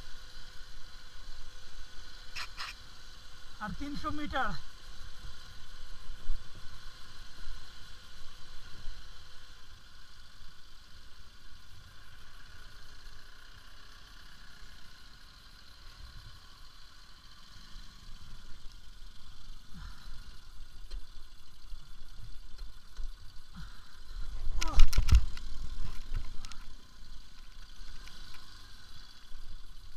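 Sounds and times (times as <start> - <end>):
motorcycle engine running: 0.0 - 29.9.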